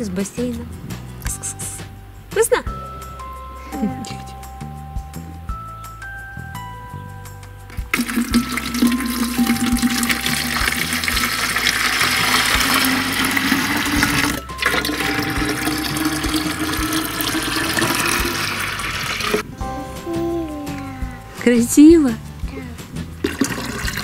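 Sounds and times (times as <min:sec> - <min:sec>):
water pouring and splashing into tank: 0:07.9 - 0:19.4, 0:23.2 - 0:24.0.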